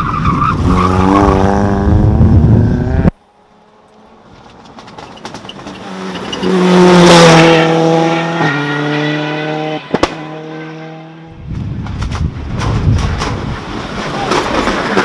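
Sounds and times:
rally car engine passing: 0.6s - 11.4s.

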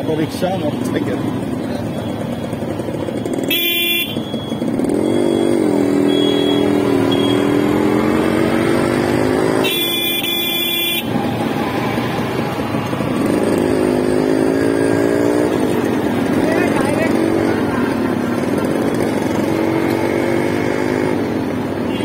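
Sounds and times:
motorcycle engine running: 0.7s - 22.0s
horn beeping: 3.2s - 7.9s, 8.7s - 11.2s.

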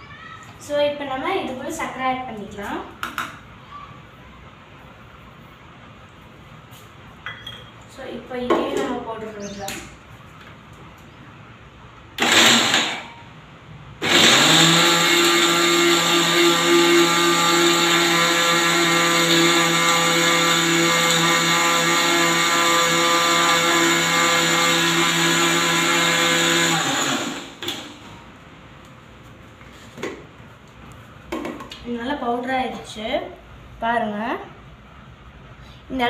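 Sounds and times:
mixer grinder running: 12.2s - 13.1s, 14.0s - 28.0s.

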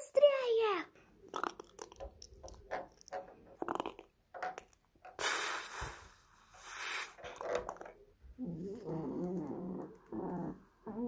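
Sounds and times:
short hissing rushes: 5.2s - 7.3s.

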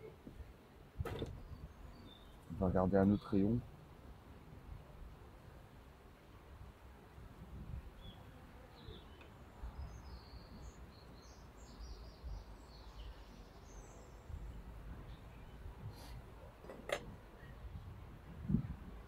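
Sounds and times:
small birds chirping: 1.1s - 3.6s, 7.6s - 16.6s.

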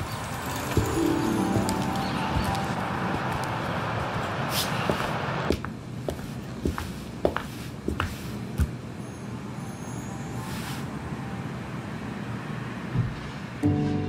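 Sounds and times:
low background noise: 0.0s - 13.6s
music: 0.6s - 3.7s, 13.6s - 14.0s.

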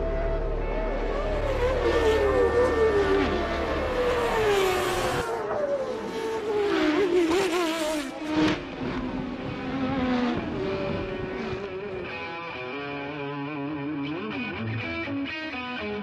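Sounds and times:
racing car engines passing: 0.0s - 12.8s.

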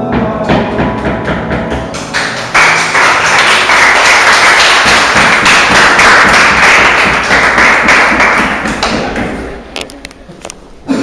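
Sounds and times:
people clapping and applauding: 1.2s - 9.9s.

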